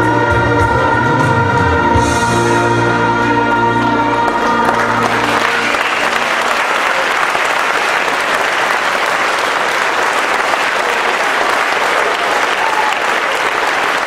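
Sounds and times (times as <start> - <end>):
held music chord: 0.0 - 6.6
audience applauding: 4.3 - 14.0.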